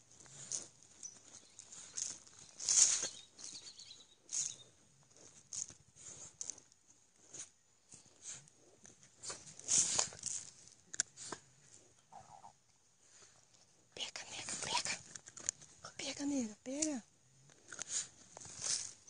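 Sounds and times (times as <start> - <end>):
dog claws digging in dirt: 0.1 - 11.6.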